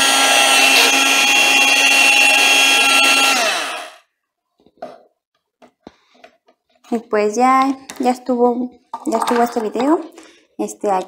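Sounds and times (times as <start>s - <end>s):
hand mixer motor winding down: 0.0s - 4.0s.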